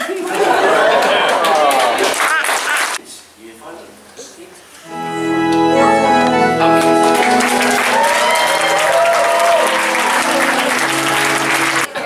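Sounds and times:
congregation applauding: 1.0s - 3.0s, 5.8s - 12.0s
held keyboard chords: 4.8s - 11.9s.

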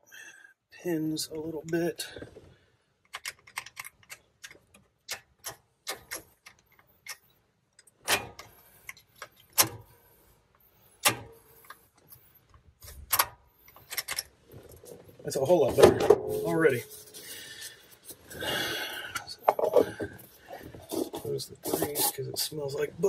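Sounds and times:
metal clicks and knocks: 3.0s - 9.9s, 19.4s - 21.2s.

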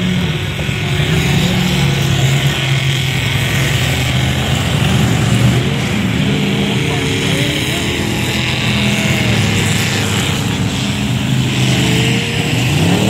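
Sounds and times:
racing truck engines droning: 0.0s - 13.0s.

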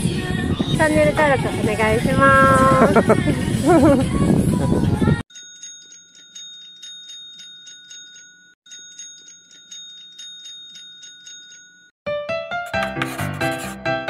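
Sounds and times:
piano music: 12.1s - 14.0s.

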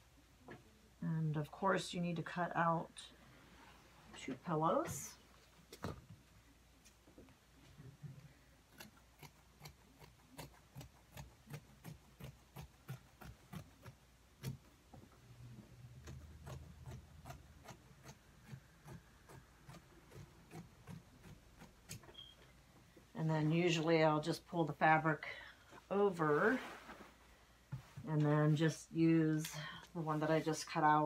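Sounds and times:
scissors snipping fabric: 8.7s - 14.7s, 16.0s - 22.3s.

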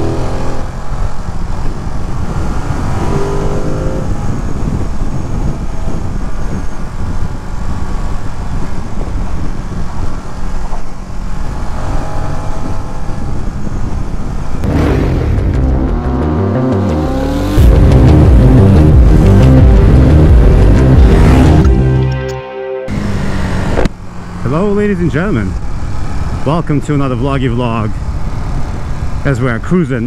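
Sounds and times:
motorcycle engine accelerating: 0.0s - 22.1s, 22.9s - 24.6s
wind and road noise: 0.0s - 22.3s, 22.9s - 30.0s.

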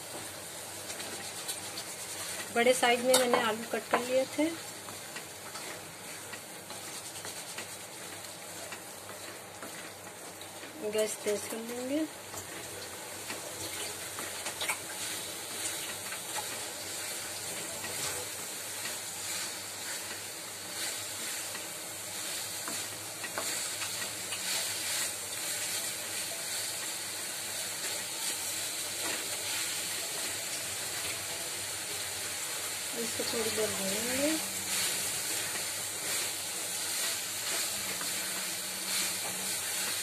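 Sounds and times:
potatoes sizzling in oil: 0.0s - 40.0s
wooden spatula scraping pan: 5.4s - 8.2s.

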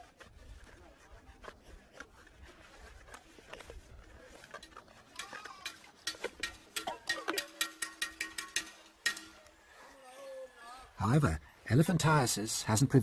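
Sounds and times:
metal pots clinking in water: 5.2s - 9.5s.

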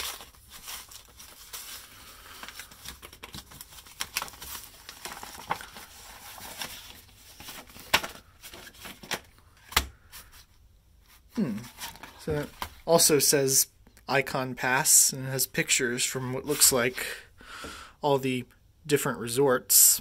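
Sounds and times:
envelope tearing and crinkling: 0.0s - 9.8s.

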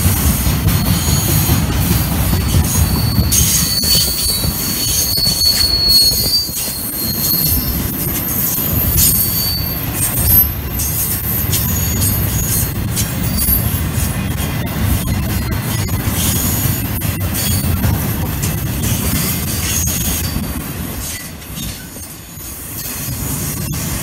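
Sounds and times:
freight train rolling past: 0.0s - 24.0s
steel wheels rumbling on rail: 0.0s - 24.0s
high-pitched wheel squeal: 2.7s - 12.7s.

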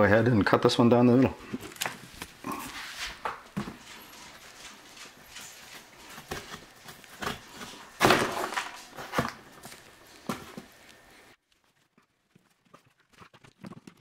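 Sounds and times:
crackling rustle: 3.8s - 14.0s.

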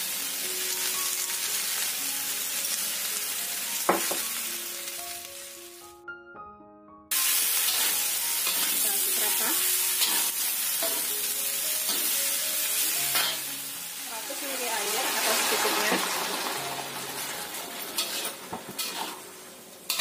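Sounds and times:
vegetables sizzling in hot oil: 0.0s - 5.9s, 7.1s - 20.0s
light background music: 0.0s - 20.0s
metal spatula scraping wok: 7.6s - 11.2s, 12.8s - 13.5s, 17.1s - 20.0s.

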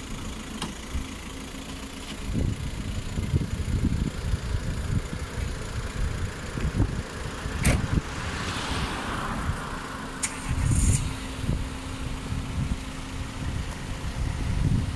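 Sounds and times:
car engines idling: 0.0s - 14.9s
wind rumble on microphone: 2.2s - 9.8s, 10.4s - 14.9s
car passing: 7.4s - 11.8s
sharp clicks: 10.2s - 11.0s.

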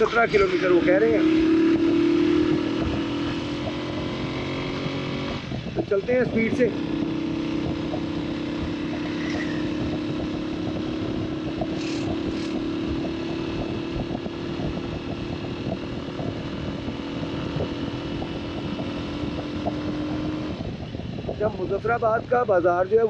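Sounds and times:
motorcycle engine running: 0.0s - 23.0s
wind and road noise: 0.0s - 23.0s.

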